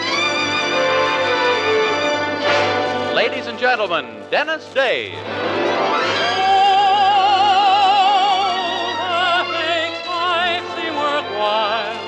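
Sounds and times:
orchestra accompaniment: 0.0s - 12.0s
man singing tenor ballad: 6.2s - 12.0s.

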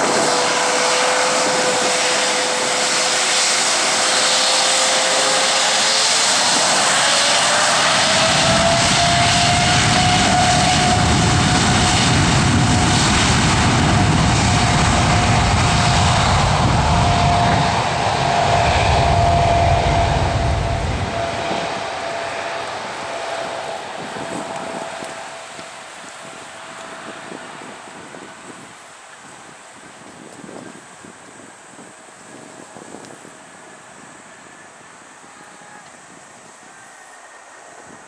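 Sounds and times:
deep engine rumble: 0.0s - 28.3s
jet engines whining: 0.0s - 28.8s.

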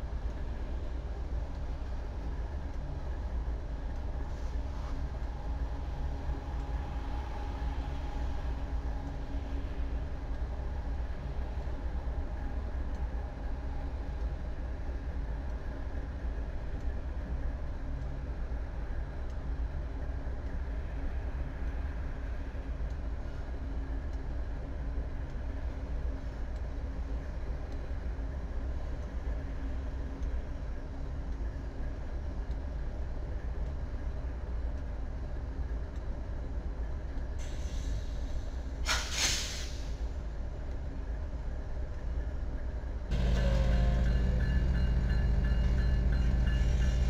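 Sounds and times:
escaping air hiss: 37.4s - 40.0s
locomotive engine rumbling: 43.1s - 47.0s.

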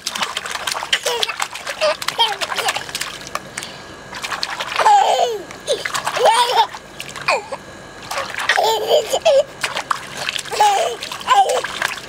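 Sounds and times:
hands splashing water: 0.0s - 5.0s, 9.6s - 12.0s
baby squealing and giggling: 8.5s - 9.5s.

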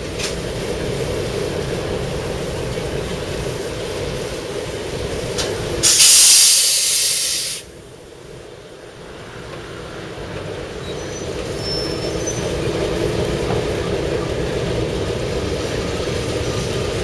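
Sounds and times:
diesel locomotive rumbling: 0.0s - 17.0s
loud hiss of released pressure: 5.8s - 7.7s.

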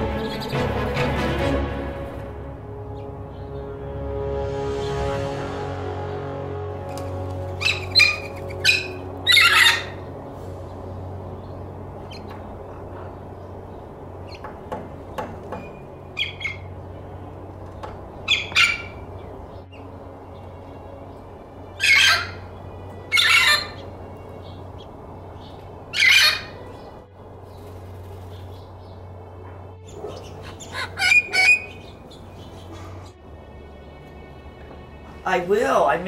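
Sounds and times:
parrot squawking: 7.6s - 10.1s, 16.2s - 16.7s, 18.3s - 19.0s, 21.8s - 22.5s, 23.1s - 23.9s, 25.9s - 26.8s, 29.9s - 33.2s.

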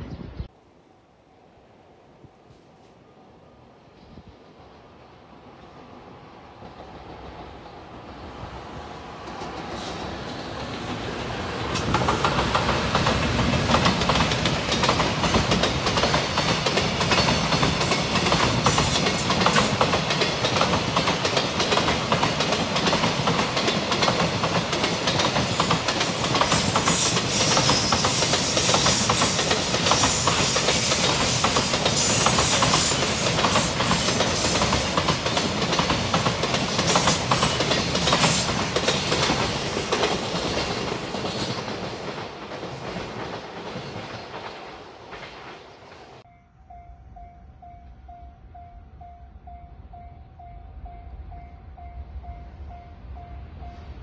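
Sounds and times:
train wheels clacking over rail joints: 9.2s - 46.2s.

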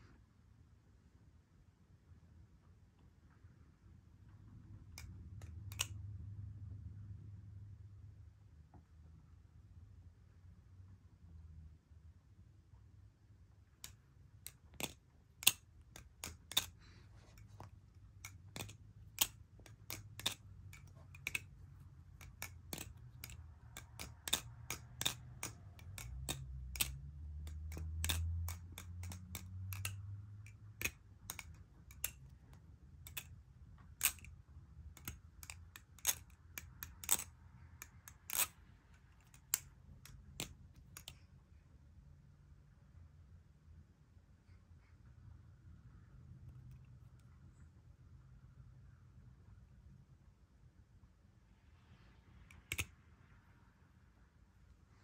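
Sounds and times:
balisong metal clicks: 13.8s - 34.3s, 34.9s - 41.2s.

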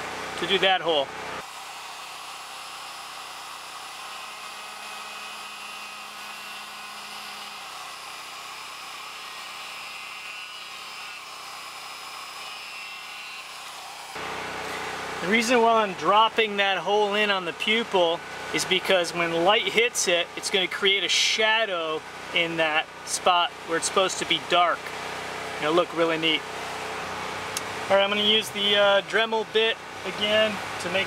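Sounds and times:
die grinder whining into wood: 1.4s - 14.9s.

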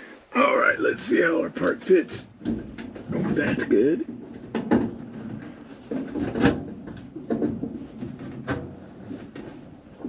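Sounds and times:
metal fittings knocking and rubbing: 2.3s - 10.0s.

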